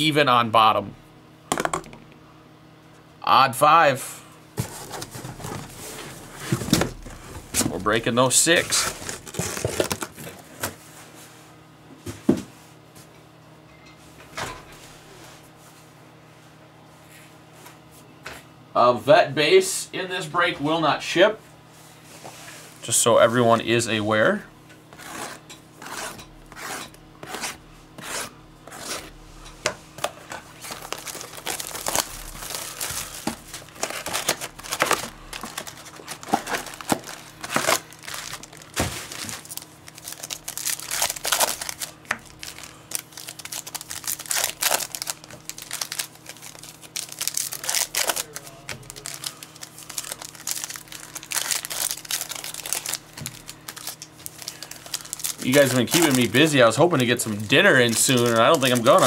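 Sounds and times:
plastic wrapping crinkling and tearing: 0:04.6 - 0:10.4, 0:30.0 - 0:59.0.

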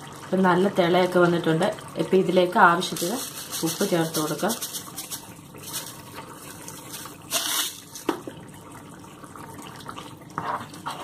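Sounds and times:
curry bubbling in a pan: 0:03.8 - 0:11.0
spoon scraping a pan: 0:06.8 - 0:08.1, 0:10.4 - 0:11.0.

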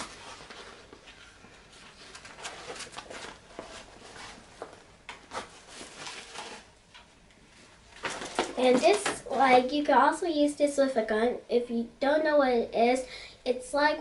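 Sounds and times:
fabric rustling: 0:00.0 - 0:06.8.

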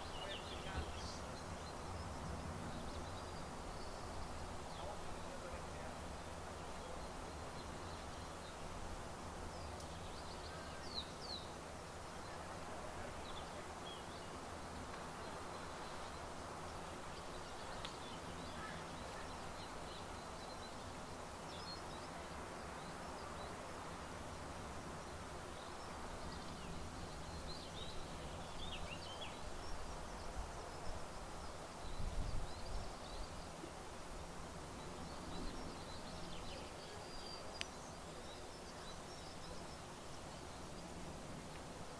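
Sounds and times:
outdoor background noise: 0:00.0 - 0:41.9.

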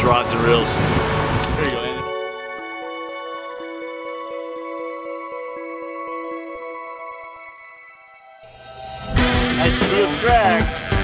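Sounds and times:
sustained chords music: 0:00.0 - 0:11.0
soft ticking pulse: 0:01.4 - 0:07.8.

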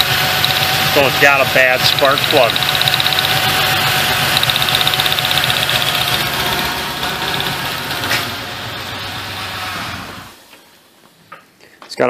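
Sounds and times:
car engine idling with misfire: 0:00.0 - 0:09.6.

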